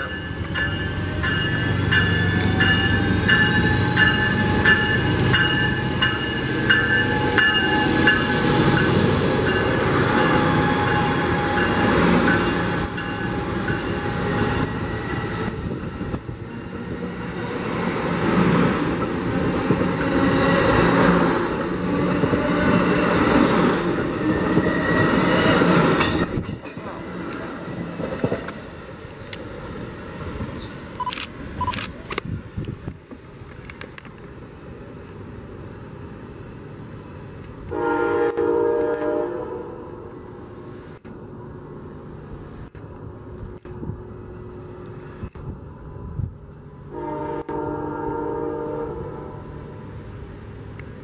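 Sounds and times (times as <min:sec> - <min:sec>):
locomotive bell ringing: 0:00.0 - 0:15.0
diesel locomotive engine: 0:00.0 - 0:51.0
high squealing of wheels: 0:01.5 - 0:15.6, 0:24.2 - 0:26.4, 0:30.3 - 0:31.7.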